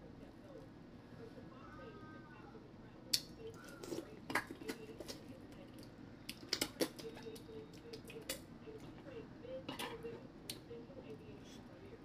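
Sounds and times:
chewing and lip smacking: 3.1s - 9.0s.

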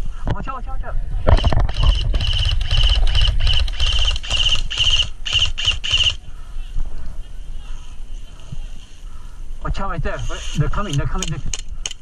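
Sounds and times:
airsoft rifle firing bursts: 1.4s - 6.2s.

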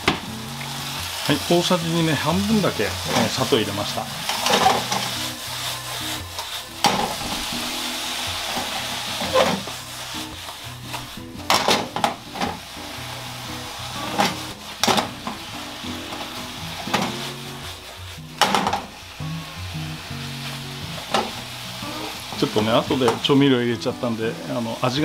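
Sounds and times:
mushrooms sizzling in pan: 0.0s - 25.0s
spatula scraping pan: 2.5s - 19.0s.

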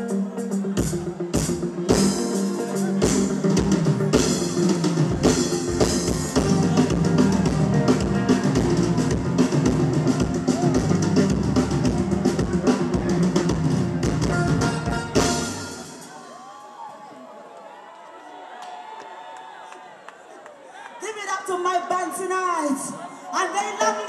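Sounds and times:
electric bass guitar: 0.0s - 16.0s
live band dance groove: 0.0s - 16.3s
drum kit kick and snare: 3.0s - 16.0s.

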